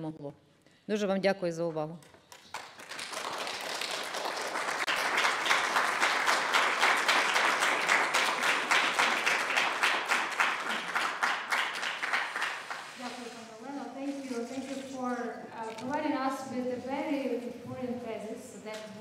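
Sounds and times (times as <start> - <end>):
audience applauding: 2.3 - 13.3.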